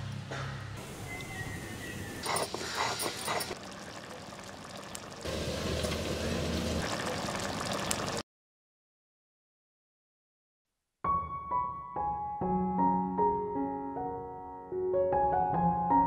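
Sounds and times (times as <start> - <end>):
curry bubbling in a clay pot: 2.2 - 8.2.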